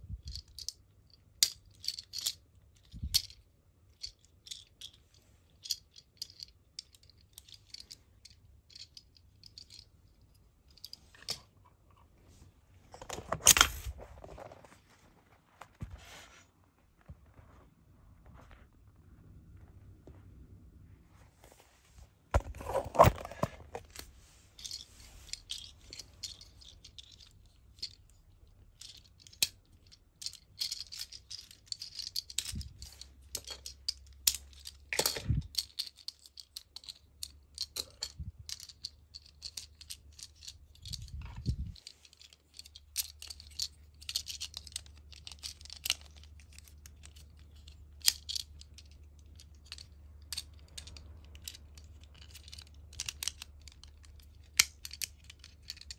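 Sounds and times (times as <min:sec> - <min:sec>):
plastic toy parts clicking: 0:28.8 - 0:55.9.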